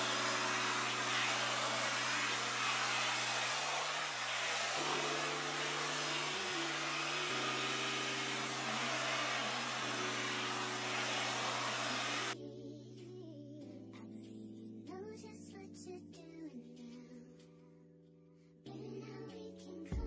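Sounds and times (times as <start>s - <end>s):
blow-dryer brush air hiss: 0.0s - 12.4s
soft background music: 0.0s - 20.0s.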